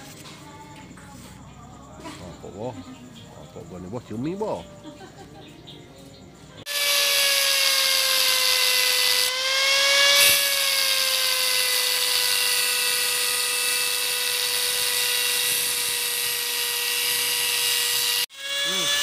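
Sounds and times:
angle grinder cutting metal: 0:06.7 - 0:19.0.

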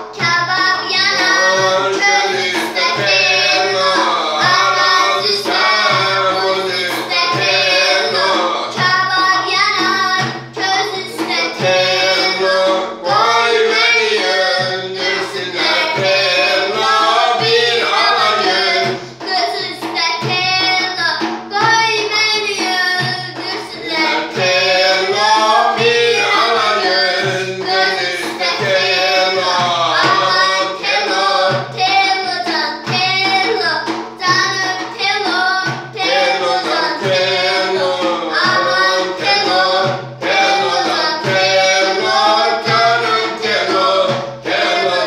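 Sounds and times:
frame drum beating: 0:00.0 - 0:45.0
girl singing folk song: 0:00.0 - 0:45.0.

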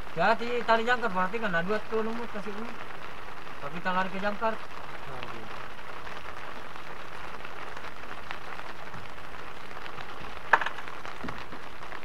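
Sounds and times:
rain on an awning: 0:00.0 - 0:12.0
sharp knock: 0:10.5 - 0:10.8.

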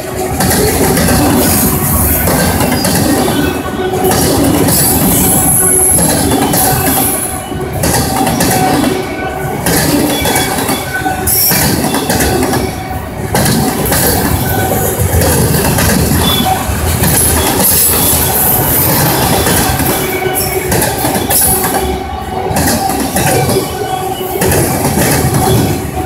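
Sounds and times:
train wheels rumbling and clattering: 0:00.0 - 0:26.0
high-pitched wheel squeals: 0:01.4 - 0:07.6.

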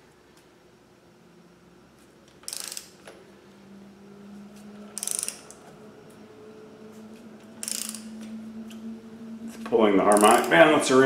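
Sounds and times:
faint steady hum: 0:00.0 - 0:11.0
ratchet wrench clicking: 0:02.4 - 0:03.1, 0:05.0 - 0:05.6, 0:07.6 - 0:08.1, 0:10.1 - 0:10.6.

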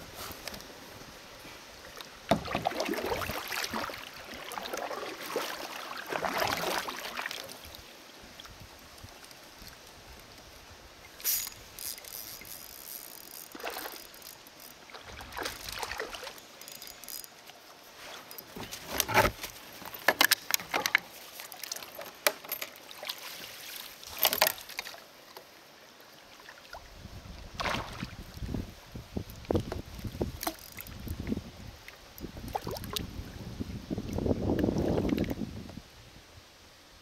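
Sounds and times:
water splashing: 0:01.8 - 0:08.5, 0:11.3 - 0:16.6, 0:27.6 - 0:28.6.

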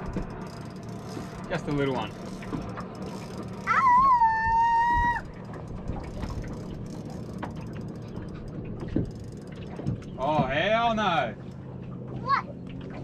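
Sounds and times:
fishing reel clicking: 0:00.0 - 0:04.0, 0:05.2 - 0:08.5
high held cry: 0:03.7 - 0:05.3.

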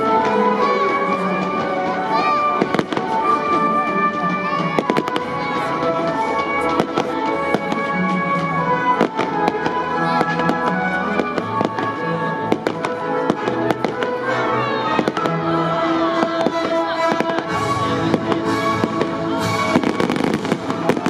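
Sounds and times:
fireworks bangs and crackles: 0:00.0 - 0:21.0.

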